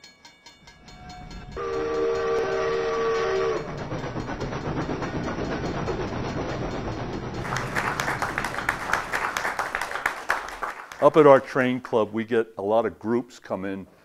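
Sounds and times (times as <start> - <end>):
steam locomotive whistle: 0.9 - 4.0
steam train hiss and rumble: 0.9 - 8.8.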